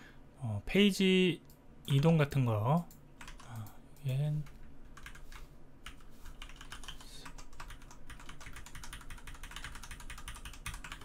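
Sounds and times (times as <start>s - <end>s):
computer keyboard typing: 2.8s - 11.0s.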